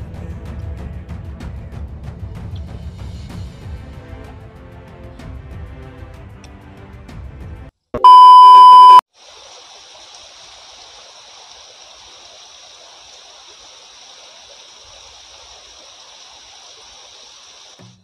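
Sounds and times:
test-tone beep: 8.0s - 9.0s
stream running over rocks: 9.1s - 17.9s.

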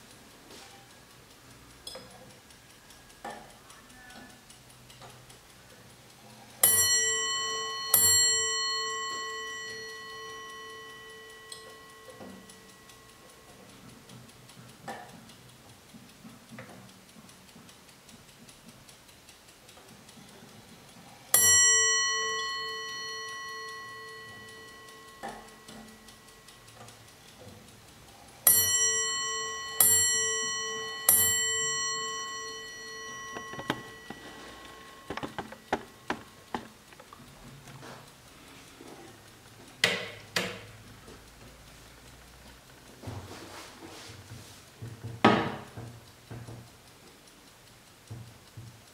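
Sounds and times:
clock ticking: 0.0s - 48.9s
clock striking bell: 6.6s - 14.0s, 21.3s - 27.2s, 28.4s - 36.7s
sharp clicks: 22.0s - 43.0s.

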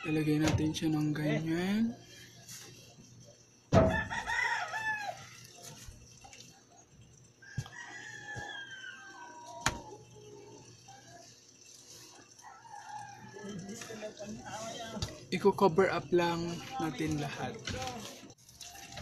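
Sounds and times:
rooster crowing: 3.8s - 5.6s, 7.4s - 10.6s, 12.1s - 15.0s.

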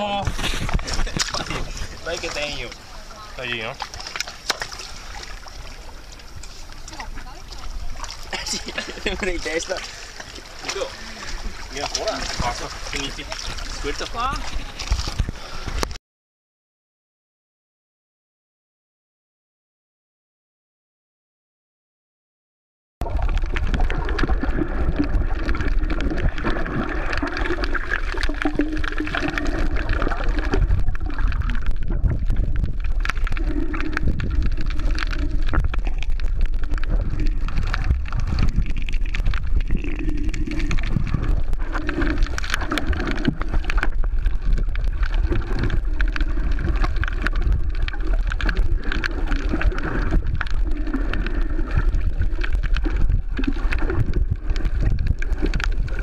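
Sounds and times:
muffled underwater water rushing: 0.0s - 16.0s, 23.0s - 56.0s.

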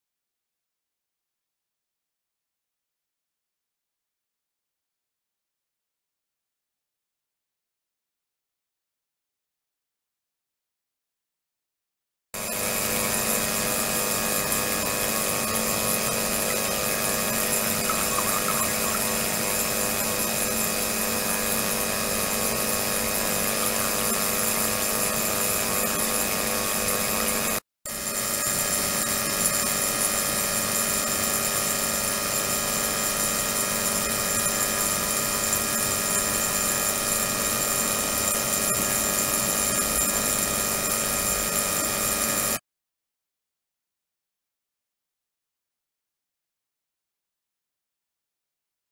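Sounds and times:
ultrasonic tank hum and hiss: 13.0s - 26.1s.

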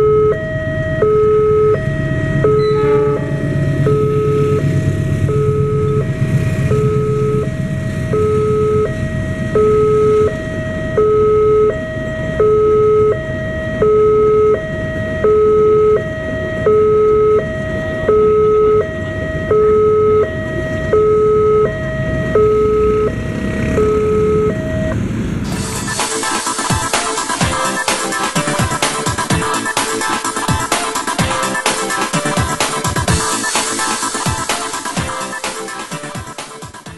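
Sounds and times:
two-tone crossing alarm: 0.0s - 36.9s
train passing rumble: 1.8s - 8.2s, 24.9s - 36.9s.

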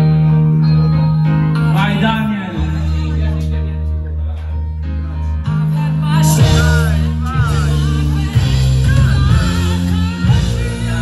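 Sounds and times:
dance-pop music with singing: 4.8s - 11.0s.

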